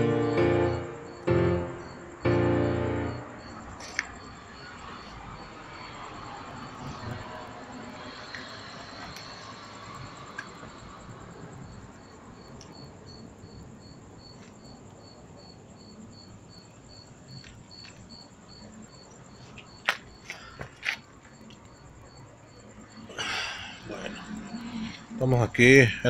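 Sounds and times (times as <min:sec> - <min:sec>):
passing traffic: 0:00.0 - 0:12.7, 0:22.7 - 0:26.0
cricket chirping: 0:00.0 - 0:26.0.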